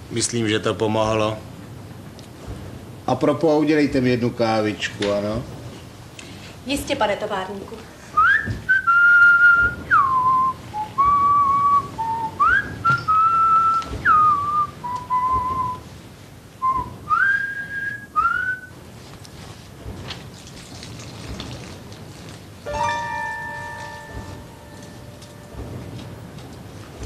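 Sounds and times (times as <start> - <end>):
person whistling slow tune: 8.1 - 15.8, 16.6 - 18.8.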